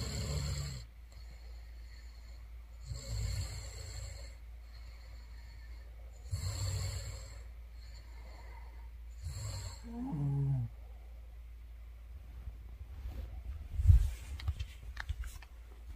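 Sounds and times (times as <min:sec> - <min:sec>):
woman snoring: 0:00.0 - 0:00.9, 0:02.8 - 0:04.4, 0:06.2 - 0:10.8.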